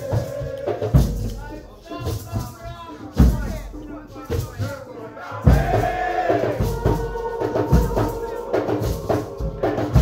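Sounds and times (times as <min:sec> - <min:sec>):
group chanting: 0:00.0 - 0:01.3, 0:05.0 - 0:10.0
bass drum strokes: 0:05.4 - 0:10.0.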